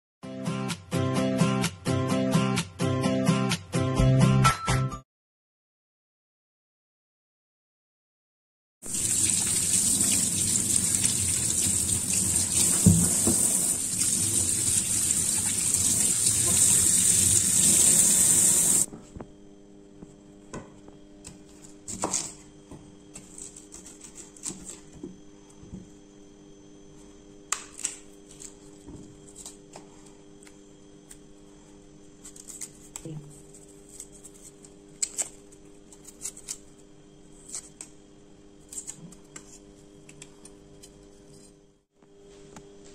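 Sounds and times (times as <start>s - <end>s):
tap water running into sink: 8.9s - 18.9s
peel being scraped off: 32.2s - 36.7s.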